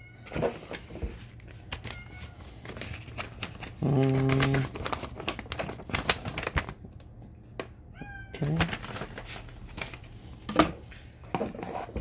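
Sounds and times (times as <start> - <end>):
paper rustling and crinkling: 0.2 - 7.7, 8.4 - 10.5.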